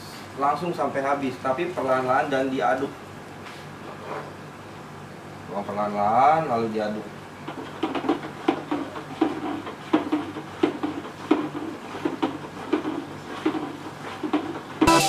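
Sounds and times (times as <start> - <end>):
stick knocking against bucket: 7.5 - 15.0.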